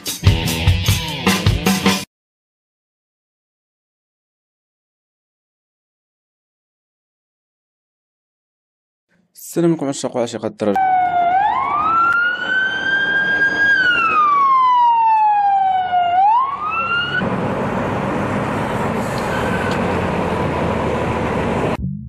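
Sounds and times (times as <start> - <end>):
emergency vehicle siren wailing: 10.8 - 21.8.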